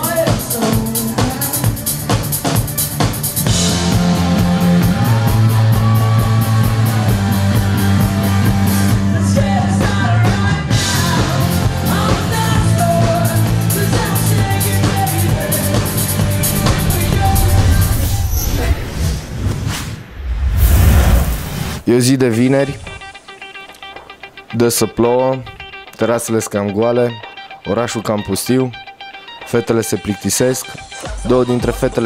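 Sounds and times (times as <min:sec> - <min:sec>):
person singing: 0:00.0 - 0:01.8, 0:08.9 - 0:18.9
punk rock band playing: 0:00.0 - 0:18.0, 0:22.7 - 0:26.0.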